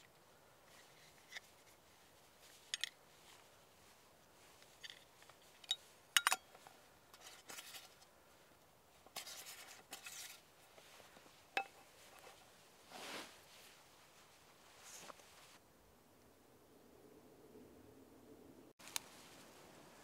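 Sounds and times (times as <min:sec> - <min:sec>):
light scraping: 0:09.2 - 0:15.6.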